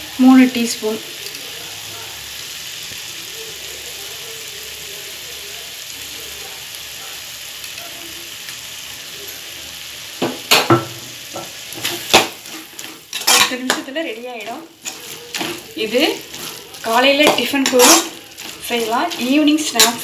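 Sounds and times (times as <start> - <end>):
vegetables sizzling in a frying pan: 0.0 - 20.0
metal spoon clinking on pan: 10.3 - 20.0.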